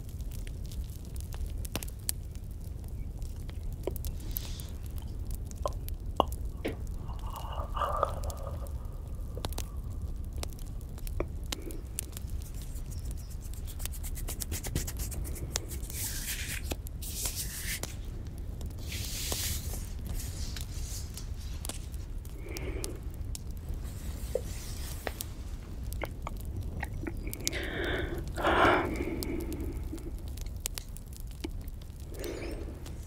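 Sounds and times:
campfire crackling: 0.0 - 33.0
breathy hissing swishes: 6.9 - 10.1.

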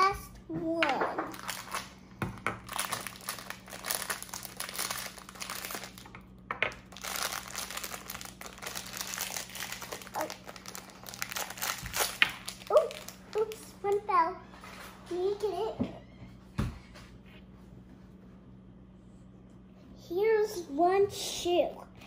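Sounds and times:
plastic bag crinkling: 1.3 - 2.0, 2.6 - 13.9.

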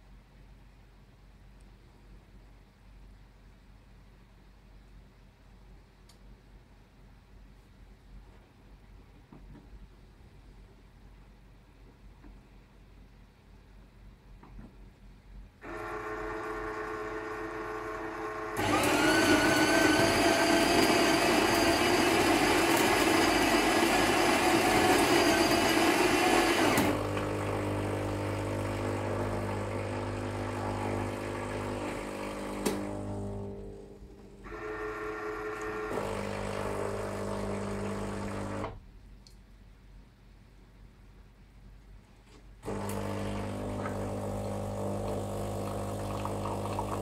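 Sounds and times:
motor hum: 15.6 - 38.8, 42.6 - 47.0
pump humming: 15.6 - 38.8, 42.6 - 47.0
coffee grinder grinding beans: 15.7 - 33.6, 34.5 - 38.7, 42.7 - 47.0.

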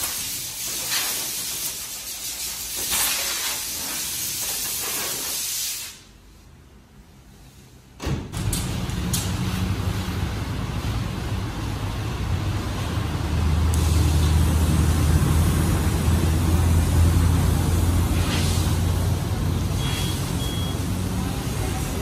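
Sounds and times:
water jet hissing on car: 0.0 - 6.1, 13.8 - 20.3
pressure washer running: 13.5 - 22.0.

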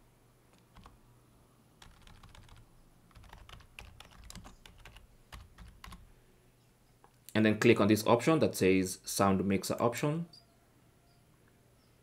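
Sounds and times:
computer keyboard typing: 0.6 - 1.0, 1.8 - 6.1.

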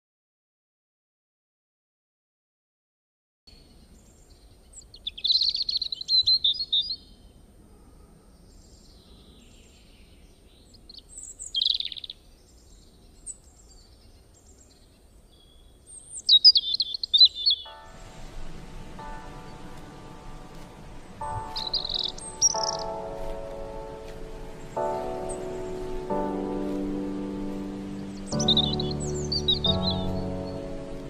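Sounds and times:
faint bird chirps: 3.5 - 26.8
songbird warbling: 16.0 - 31.0
music: 17.7 - 31.0.

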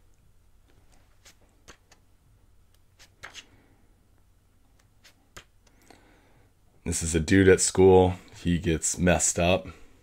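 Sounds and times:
pages turning: 0.7 - 2.0, 3.0 - 3.5, 4.8 - 5.7.

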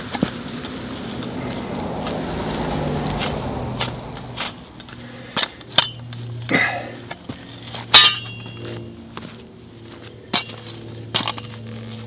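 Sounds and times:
steady low hum: 0.0 - 12.0
metal tool clinking into ground: 5.4 - 6.2, 7.6 - 8.8, 10.3 - 12.0.

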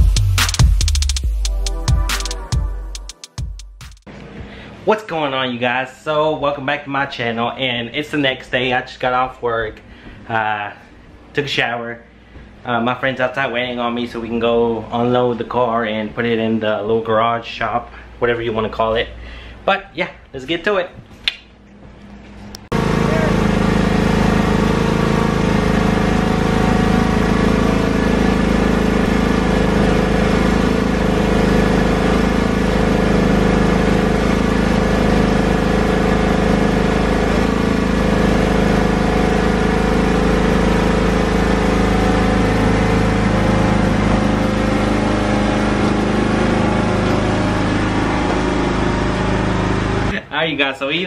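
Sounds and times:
small engine running under load: 22.7 - 50.2.

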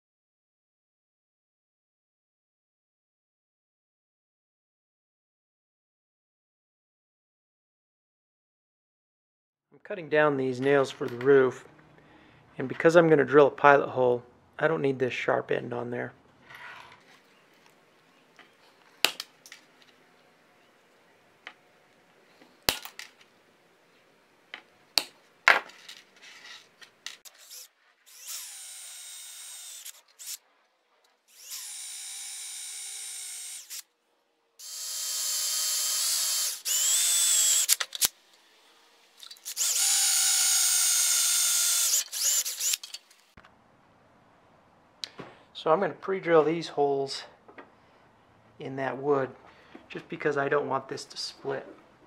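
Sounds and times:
side cutters snapping nails: 19.0 - 19.6, 22.7 - 23.1
power drill boring through metal: 27.3 - 30.4, 31.3 - 33.8, 34.6 - 43.3.

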